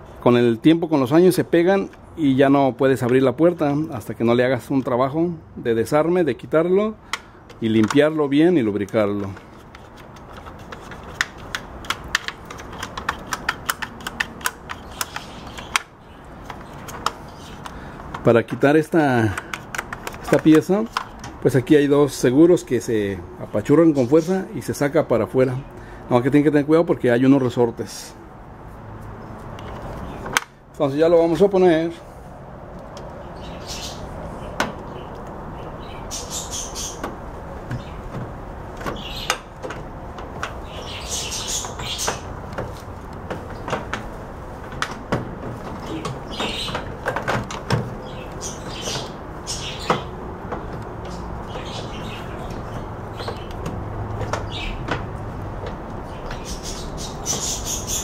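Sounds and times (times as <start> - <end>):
plastic scraping and rubbing: 7.6 - 18.3
plastic latch clicks and taps: 11.1 - 15.9, 19.3 - 21.4.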